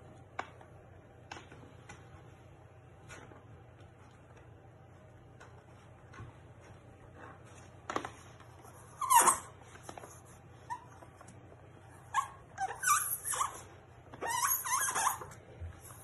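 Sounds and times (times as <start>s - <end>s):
skin squeaking on plastic: 8.8s - 10.0s, 12.0s - 15.4s.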